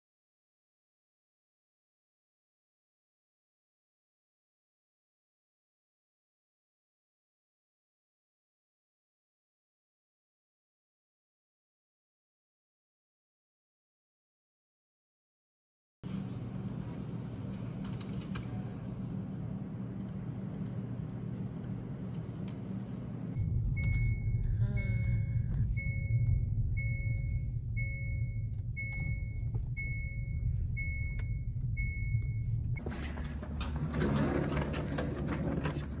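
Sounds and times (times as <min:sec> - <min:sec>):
steady low hum: 0:16.0 - 0:36.0
low car cabin rumble: 0:23.4 - 0:36.0
car warning chime beeping: 0:23.8 - 0:32.6.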